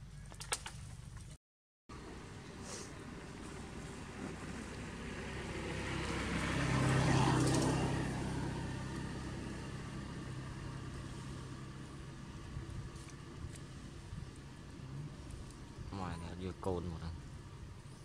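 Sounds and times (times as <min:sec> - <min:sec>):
vehicle driving past: 0:02.0 - 0:15.9.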